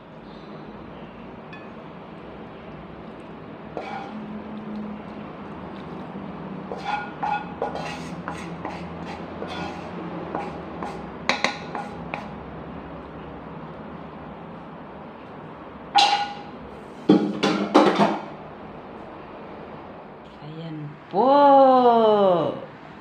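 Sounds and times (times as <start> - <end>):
metal spatula scraping a pan: 3.8 - 4.3, 6.7 - 12.4, 16.0 - 16.5.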